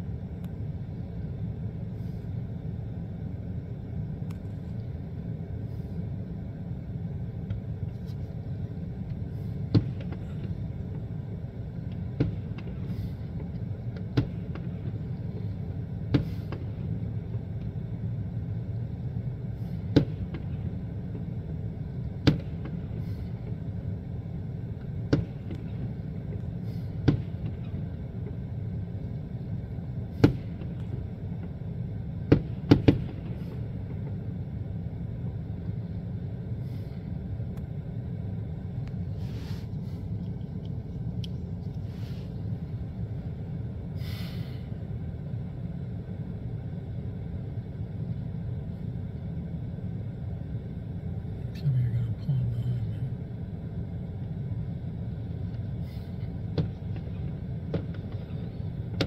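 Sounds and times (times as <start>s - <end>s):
low rumble: 0.0s - 59.0s
fireworks bursting: 32.2s - 34.2s.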